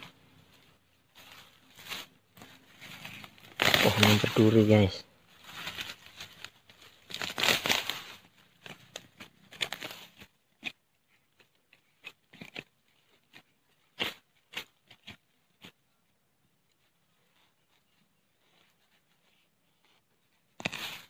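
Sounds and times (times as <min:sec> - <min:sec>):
rustling and scraping: 0:00.0 - 0:15.9, 0:16.6 - 0:21.0
digging in grass and soil: 0:00.0 - 0:21.0
short scrapes and snaps: 0:01.8 - 0:04.5, 0:05.6 - 0:15.8, 0:19.8 - 0:21.0.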